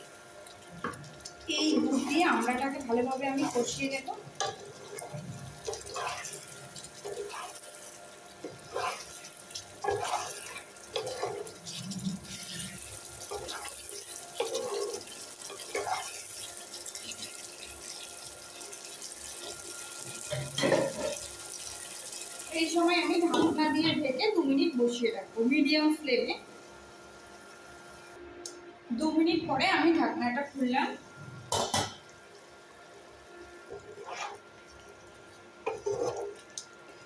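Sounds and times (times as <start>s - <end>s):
gravy sizzling and bubbling: 0.0s - 28.2s, 29.4s - 37.0s
wooden spatula scraping wok: 1.6s - 17.3s, 33.7s - 34.5s, 35.6s - 36.4s.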